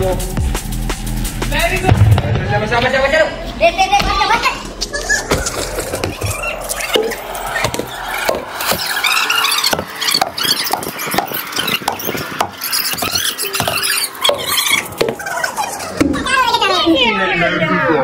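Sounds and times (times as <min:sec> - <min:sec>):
people shouting and squealing: 0:03.6 - 0:18.0.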